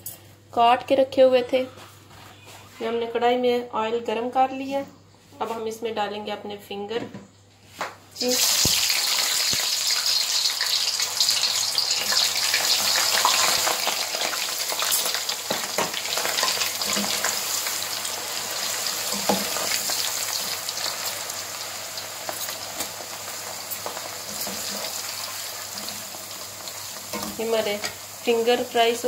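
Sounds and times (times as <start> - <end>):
fries sizzling in hot oil: 8.2 - 29.0.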